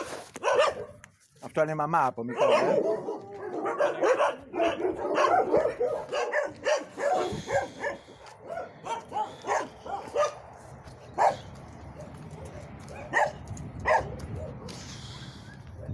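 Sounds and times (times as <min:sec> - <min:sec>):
dogs barking: 0:00.0 - 0:01.0, 0:02.2 - 0:15.9.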